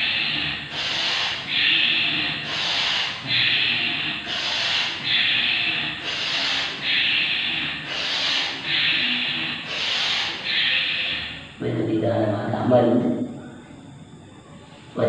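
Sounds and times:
man's forceful hissing breaths: 0.0s - 11.6s.

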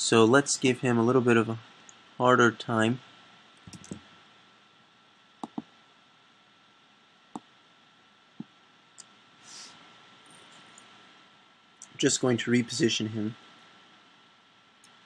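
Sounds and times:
computer mouse clicks: 3.6s - 4.0s, 5.4s - 5.7s.

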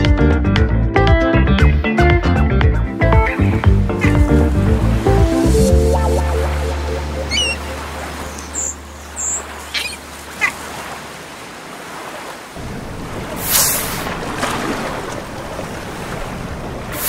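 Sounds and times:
wind and waves: 2.2s - 17.0s
hissing surge of water: 3.9s - 17.0s
high bird chirps: 7.1s - 10.6s.

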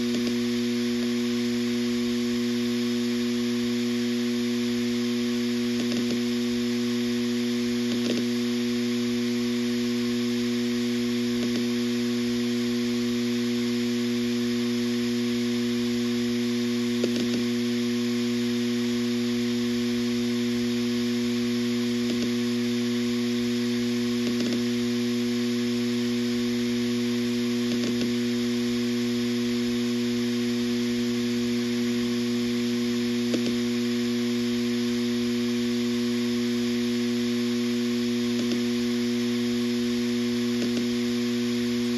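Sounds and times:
hard drive ticks: 0.0s - 0.4s, 5.8s - 6.2s, 7.9s - 8.3s, 11.4s - 11.7s, 17.0s - 17.5s, 22.0s - 22.4s, 24.2s - 24.7s, 27.7s - 28.2s, 33.3s - 33.6s, 38.3s - 38.7s, 40.6s - 41.0s
hard drive humming: 0.0s - 41.9s.

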